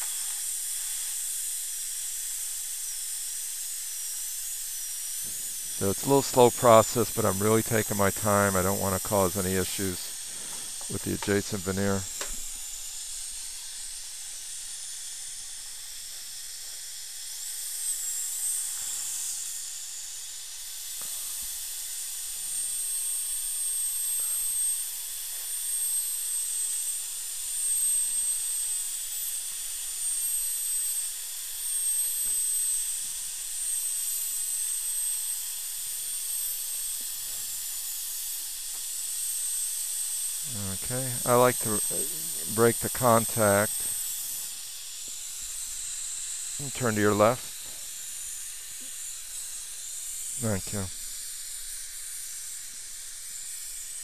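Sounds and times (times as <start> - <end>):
steady hiss: 0.0 - 27.6, 28.3 - 54.0
dental drill whining: 0.0 - 54.0.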